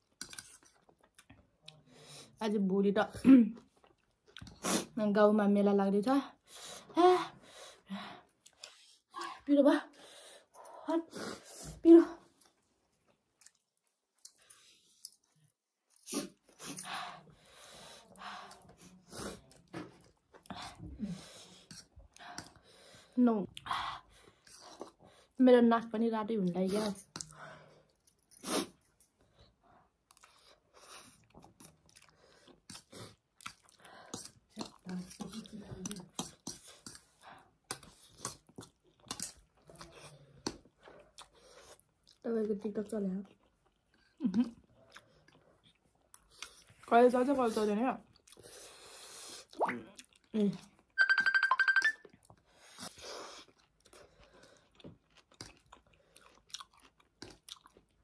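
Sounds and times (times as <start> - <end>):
chewing noodles: 26.9 - 46.9, 48.0 - 51.0, 52.0 - 58.0.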